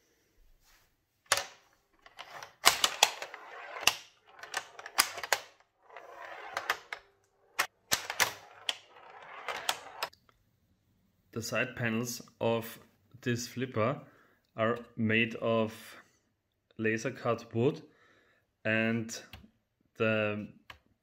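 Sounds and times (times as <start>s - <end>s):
metal ball rolling on wood: 2.0s - 10.1s.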